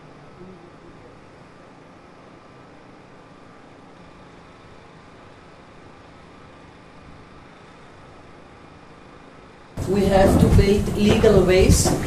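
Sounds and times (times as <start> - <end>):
faint outdoor hiss: 0.0 - 11.9.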